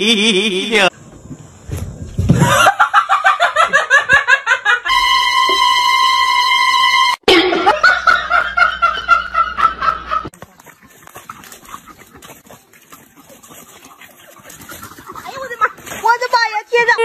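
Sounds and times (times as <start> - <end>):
person laughing: 0.0 - 0.8, 2.4 - 4.9, 7.3 - 10.3
faint outdoor background: 0.0 - 17.0.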